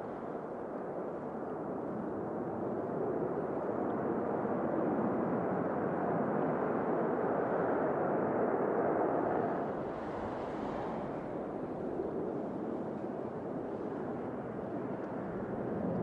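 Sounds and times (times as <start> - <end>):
jet engines rushing: 9.2 - 15.9.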